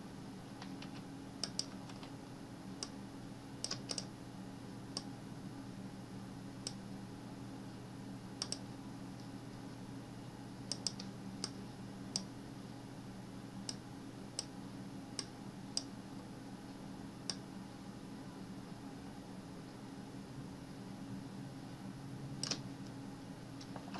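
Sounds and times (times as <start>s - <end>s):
steady low hum: 0.0s - 23.9s
mouse buttons clicking: 0.6s - 2.1s, 8.4s - 8.6s.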